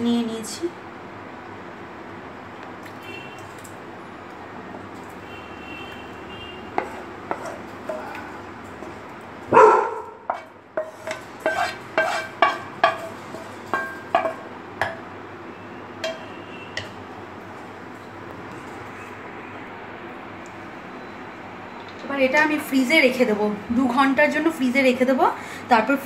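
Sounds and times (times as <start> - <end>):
spatula clinking on pan and bowl: 6.8 - 9.0, 10.3 - 15.1, 16.0 - 17.0
spatula scraping custard from pan: 10.3 - 13.6.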